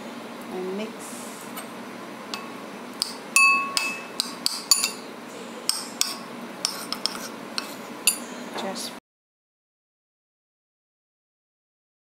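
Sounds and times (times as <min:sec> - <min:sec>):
metal spoon clinking ceramic bowl: 0:02.4 - 0:05.0.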